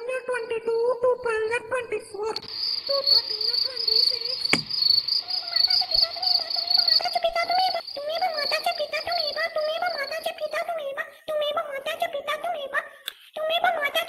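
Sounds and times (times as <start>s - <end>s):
crickets chirping: 0.2s - 14.0s
sharp click: 4.4s - 4.8s.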